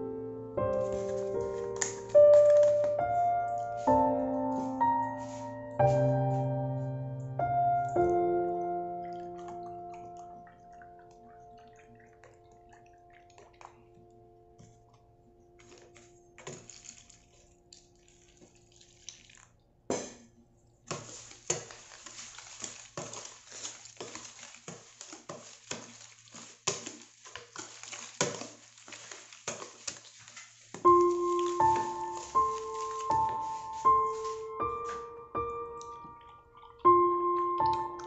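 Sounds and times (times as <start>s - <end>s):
pouring and handling sounds: 0.6s - 38.0s
whisk scraping plastic container: 20.9s - 34.4s.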